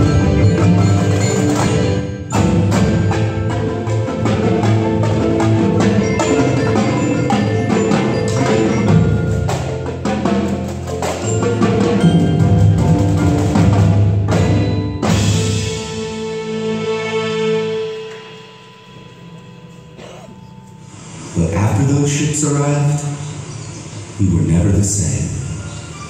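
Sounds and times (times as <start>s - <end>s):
snare tenor and bass drums: 0.0s - 16.3s
marimbas and vibraphones: 0.0s - 16.4s, 17.2s - 26.0s.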